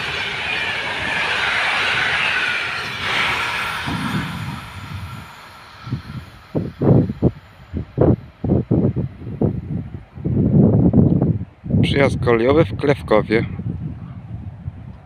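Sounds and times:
train coaches rolling on rails: 0.0 - 7.8
falling whine: 0.0 - 8.8.

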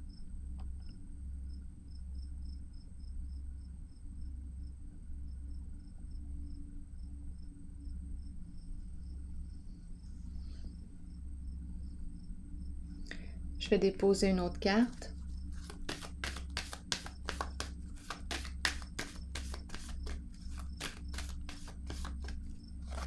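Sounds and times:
cricket chirping: 0.0 - 13.8, 14.4 - 15.7.

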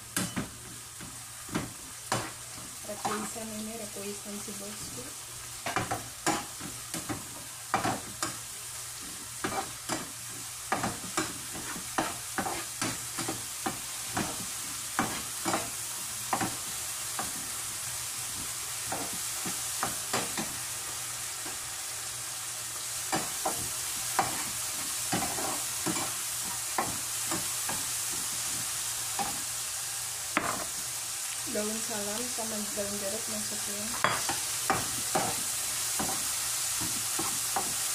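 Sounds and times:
spices sizzling in a frying pan: 0.0 - 37.9
spatula scraping and tapping pan: 0.2 - 2.4, 9.0 - 16.6, 23.1 - 28.6, 34.0 - 35.4.

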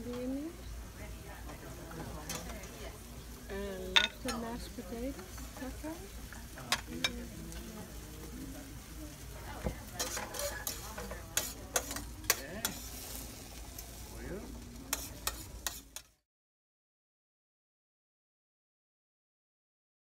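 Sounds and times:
sauce sizzling in a skillet: 0.0 - 16.2
metal utensil scraping a pan: 9.6 - 14.0, 14.9 - 16.2.

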